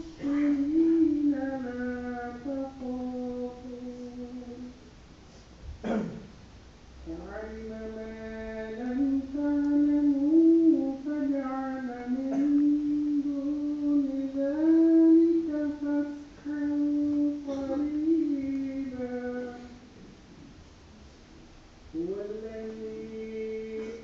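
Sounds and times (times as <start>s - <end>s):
person chanting melodic recitation: 0.0s - 4.8s, 7.0s - 19.9s, 22.0s - 24.0s.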